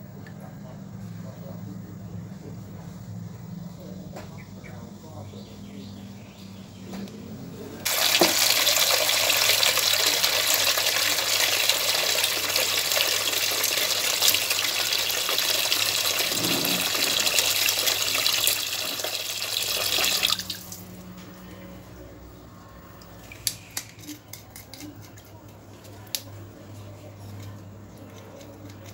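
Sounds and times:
tap water pouring into metal basin: 0:07.8 - 0:20.9.

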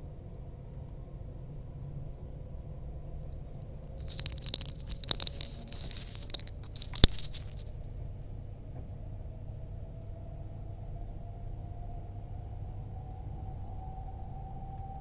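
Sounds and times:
close crackling and crunching: 0:03.3 - 0:07.9.

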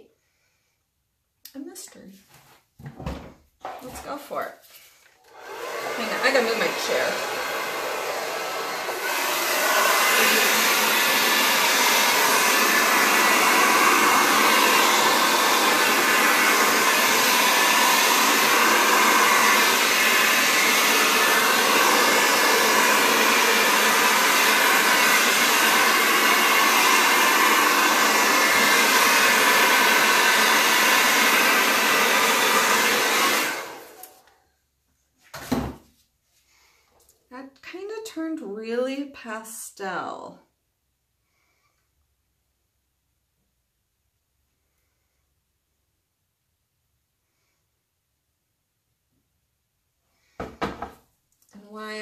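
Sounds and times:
hair dryer blowing: 0:05.2 - 0:34.3, 0:51.6 - 0:52.0.

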